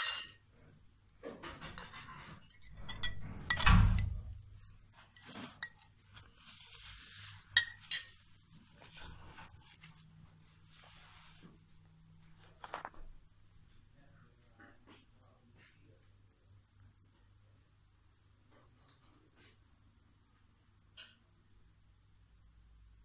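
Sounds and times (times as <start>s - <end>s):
metal spoon scraping ceramic plate: 1.8s - 3.8s, 7.5s - 8.2s.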